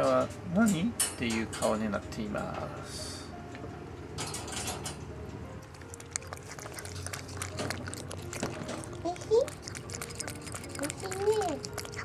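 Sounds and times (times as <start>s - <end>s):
cat crunching kibble: 5.6s - 12.0s.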